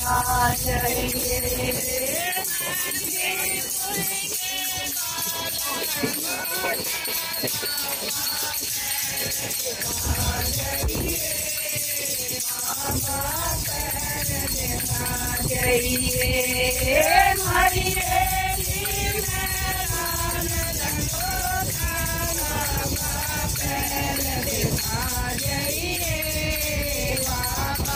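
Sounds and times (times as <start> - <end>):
small hand cymbals jingling: 0.0 - 27.9
women singing together: 0.0 - 27.9
hands clapping: 3.8 - 14.1.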